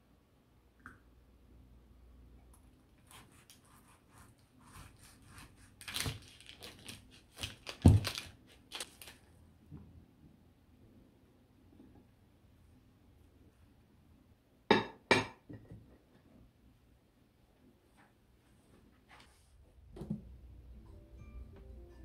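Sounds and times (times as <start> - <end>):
knife sawing through sandwich: 3.1 - 5.8
paper wrapper crinkling: 5.8 - 9.3.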